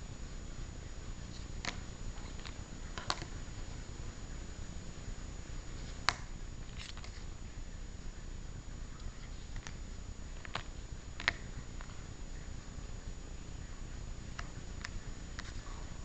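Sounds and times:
steady low hiss: 0.0s - 16.0s.

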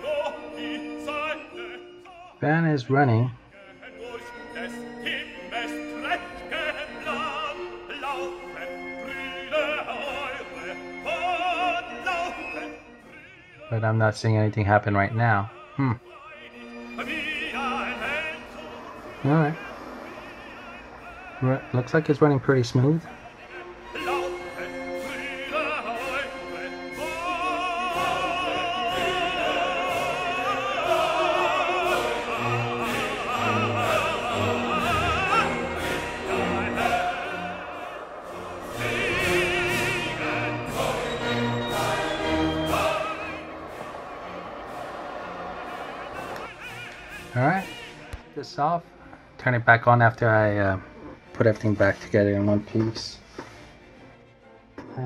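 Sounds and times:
classical accompaniment: 0.0s - 2.4s, 3.4s - 55.0s
operatic singing: 0.0s - 53.2s
orchestra playing: 2.9s - 15.4s, 16.4s - 49.1s.

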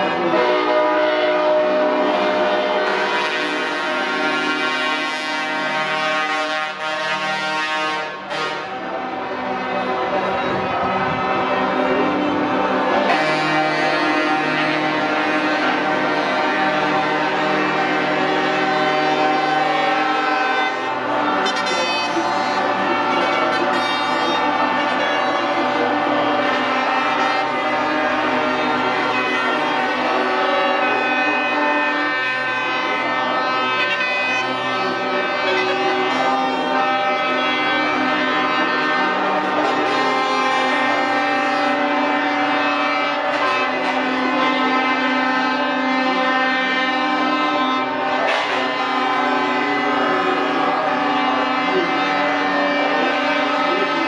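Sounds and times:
truck air horns chord: 0.0s - 54.0s.

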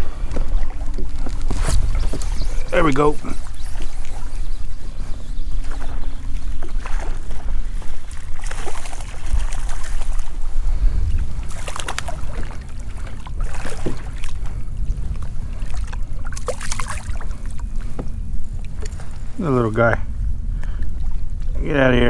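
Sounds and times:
wind rumble on microphone: 0.0s - 22.0s
water splashes: 5.6s - 10.5s, 11.1s - 19.8s.

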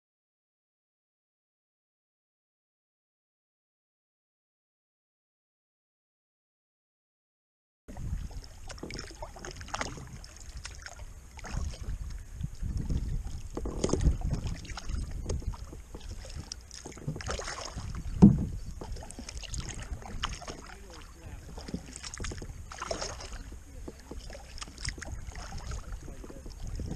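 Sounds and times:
paddle splashing in water: 7.9s - 26.9s
wind on microphone: 7.9s - 26.9s.

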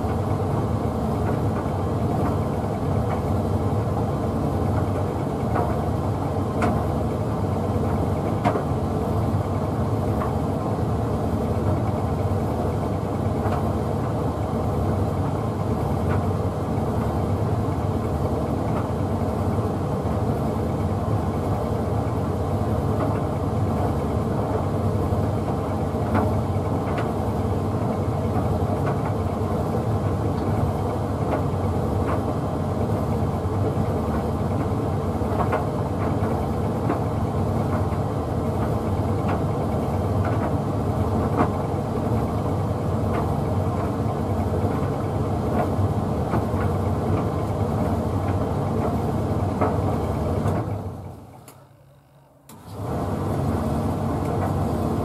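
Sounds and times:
tumble dryer running: 44.8s - 55.0s.

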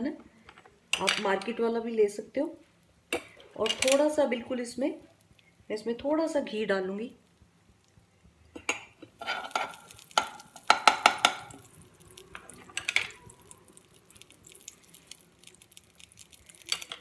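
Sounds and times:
faint sizzling: 1.0s - 17.0s
spoon knocking on pan: 9.4s - 11.6s.

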